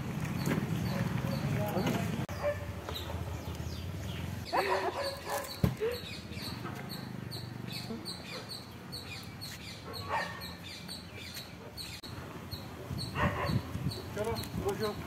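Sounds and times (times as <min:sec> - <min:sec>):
street ambience: 0:00.0 - 0:15.0.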